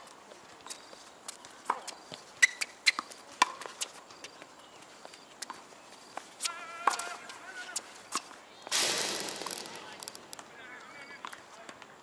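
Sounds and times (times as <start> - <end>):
racket hitting tennis ball: 8.7 - 10.5.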